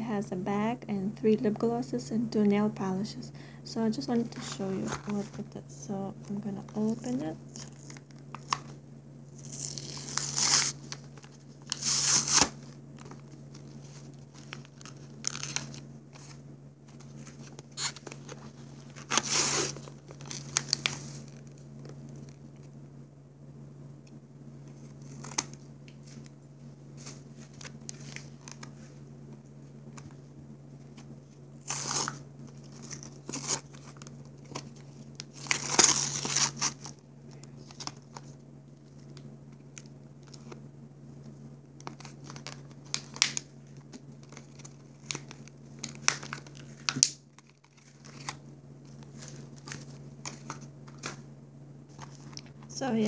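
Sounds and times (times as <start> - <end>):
plastic packaging tearing and crinkling: 6.9 - 8.8, 9.4 - 22.4, 24.8 - 26.3, 27.0 - 28.9, 31.6 - 39.2, 41.8 - 51.2.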